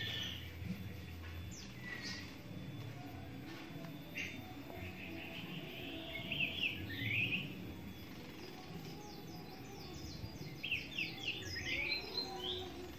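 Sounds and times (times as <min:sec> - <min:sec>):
bird chirping: 0:00.0 - 0:12.9.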